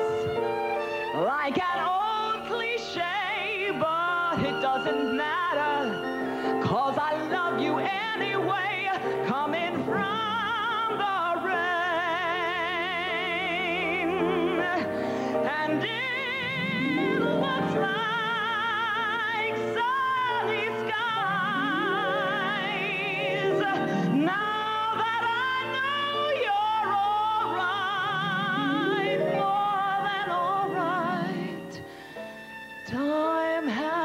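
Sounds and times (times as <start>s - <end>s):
piano accompaniment: 0.0s - 34.0s
woman singing a slow ballad: 32.9s - 34.0s.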